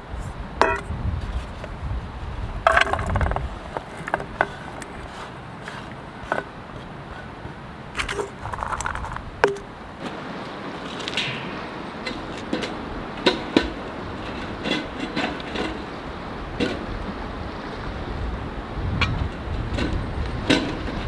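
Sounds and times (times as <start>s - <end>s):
steel pot clinking on wood: 0.6s - 0.9s.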